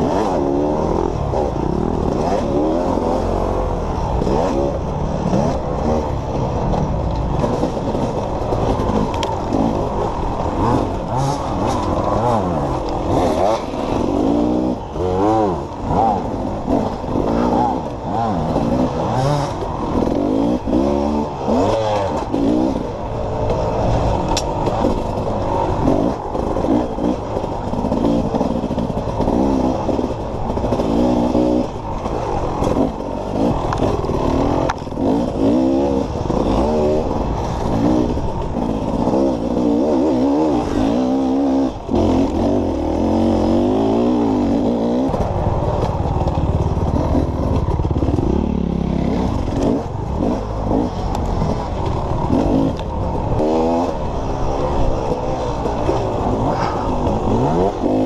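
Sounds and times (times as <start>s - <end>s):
dirt bike engine revving: 0.0s - 58.0s
bike clattering over rough ground: 41.8s - 58.0s.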